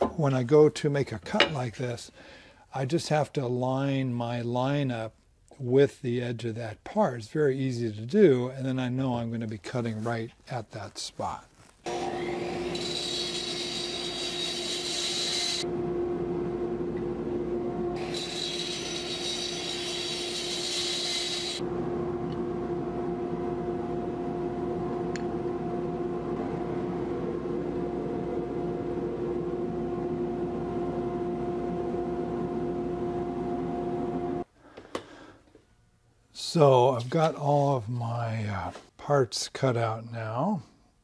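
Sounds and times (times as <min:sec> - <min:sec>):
miter saw cutting wood: 0:11.9 - 0:15.7, 0:18.0 - 0:21.6
motor hum: 0:11.9 - 0:34.4.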